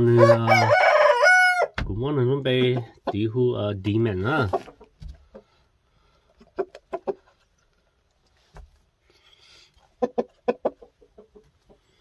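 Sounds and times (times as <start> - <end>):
rooster clucking: 6.4 - 7.3, 9.9 - 12.0.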